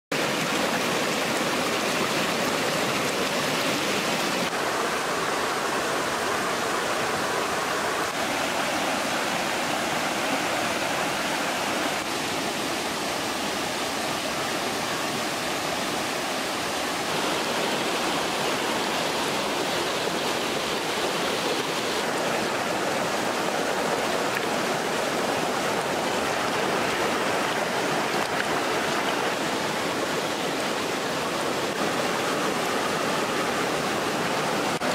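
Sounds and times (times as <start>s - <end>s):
stream rushing over rocks: 0.1s - 34.9s.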